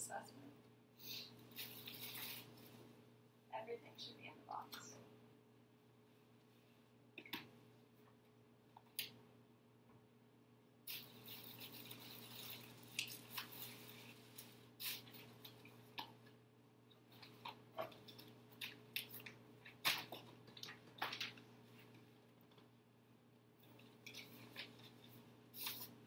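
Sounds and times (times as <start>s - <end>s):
faint steady hum: 0.0s - 26.0s
plastic bag crinkling: 1.5s - 2.7s, 10.9s - 15.7s
paper bills rustling: 11.0s - 15.5s, 24.1s - 26.0s.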